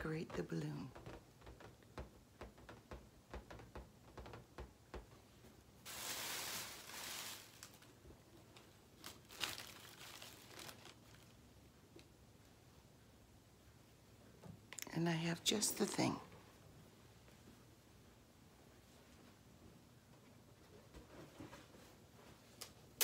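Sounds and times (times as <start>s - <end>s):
crinkling and rustling: 0.0s - 12.1s.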